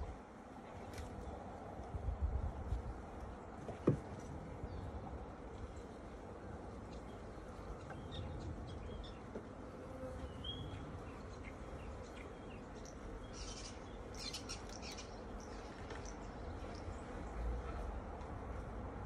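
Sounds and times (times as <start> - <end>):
faint hum of honeybees: 0.0 - 19.0
small birds chirping: 5.6 - 9.5, 10.2 - 18.0.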